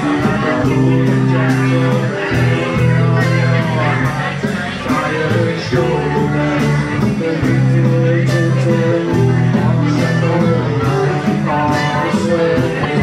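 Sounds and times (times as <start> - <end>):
acoustic guitar: 0.0 - 13.0
drum kit beat: 0.0 - 13.0
sustained low bass notes: 0.0 - 13.0.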